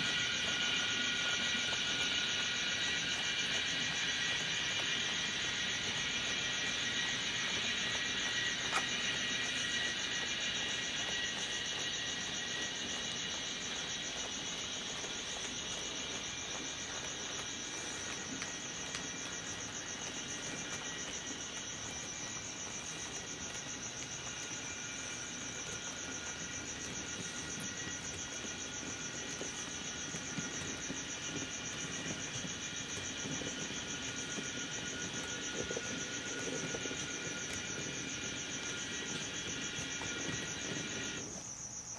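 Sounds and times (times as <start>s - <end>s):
model train whine: 0.0s - 41.8s
wagon wheels rattling: 14.8s - 41.3s.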